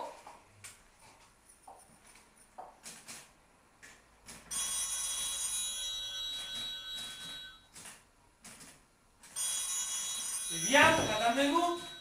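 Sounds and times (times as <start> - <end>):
telephone ringing: 4.5 - 7.7, 9.4 - 12.0.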